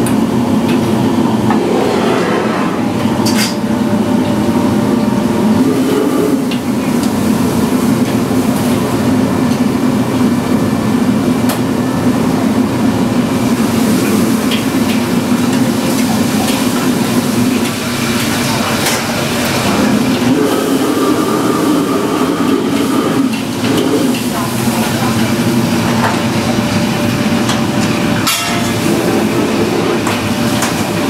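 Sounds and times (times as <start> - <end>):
gas burners roaring: 0.0 - 31.0.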